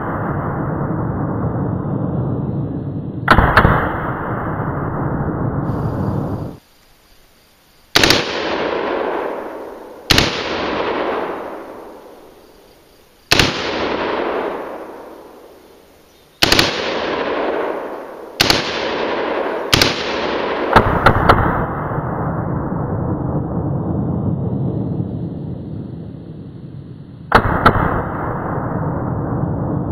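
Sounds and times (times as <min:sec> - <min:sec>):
rifle gunshots with echo: 0:03.2 - 0:06.6, 0:08.0 - 0:12.4, 0:13.2 - 0:15.6, 0:16.4 - 0:22.4, 0:27.3 - 0:29.4.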